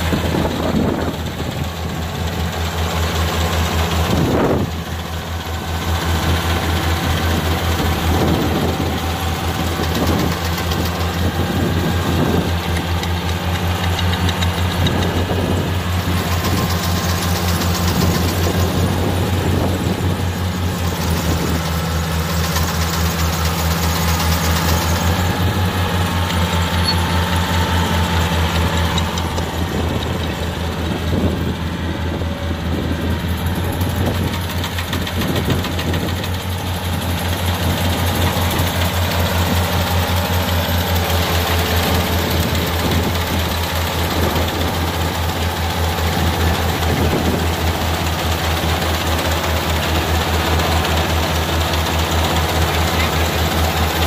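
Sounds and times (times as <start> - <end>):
combine harvester engine hum: 0.0 - 54.0.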